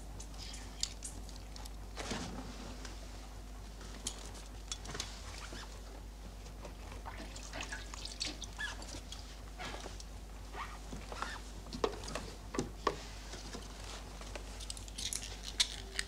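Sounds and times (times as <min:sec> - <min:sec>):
low steady hum: 0:00.0 - 0:16.0
small clicks and rustles: 0:10.8 - 0:16.0.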